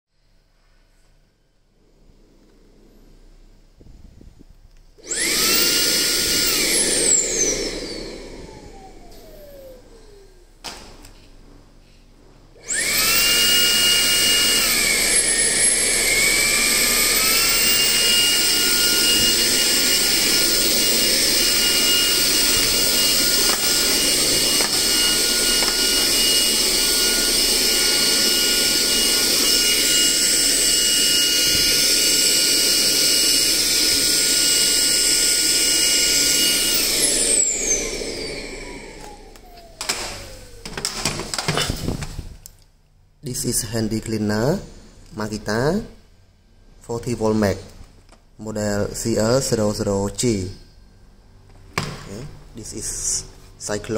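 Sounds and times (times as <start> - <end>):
vacuum motor whining: 4.7 - 11.2, 12.6 - 42.5.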